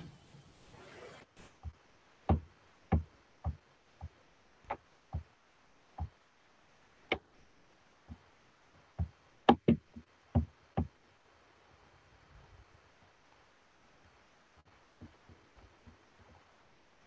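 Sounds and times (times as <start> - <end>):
computer keyboard and mouse knocks: 9.0 - 10.9.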